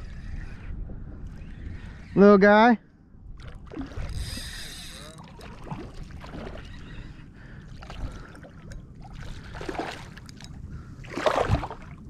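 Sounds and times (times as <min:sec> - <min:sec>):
water sloshing around kayak: 0:03.4 - 0:12.0.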